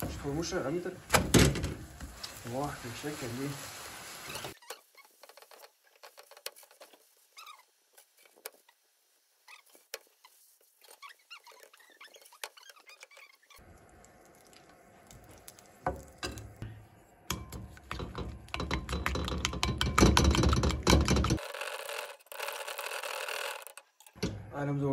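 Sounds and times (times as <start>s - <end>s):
plastic spatula on a pan: 0.0s - 8.8s
fork beating eggs in a bowl: 17.4s - 23.5s.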